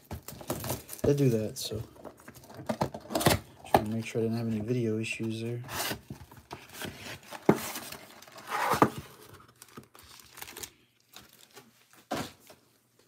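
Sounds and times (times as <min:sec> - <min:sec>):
cardboard rustles and taps: 0:05.8 - 0:08.0.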